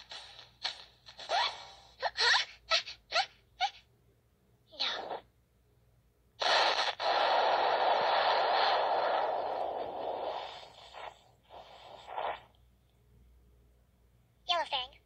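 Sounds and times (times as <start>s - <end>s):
cartoon explosion blast: 6.4s - 10.7s
short rushing bursts: 6.4s - 12.5s.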